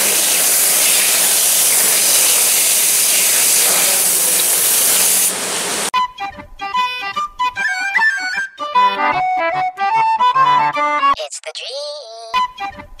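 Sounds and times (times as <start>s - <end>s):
hose spraying water: 0.0s - 5.9s
accordion-like music: 6.0s - 11.2s.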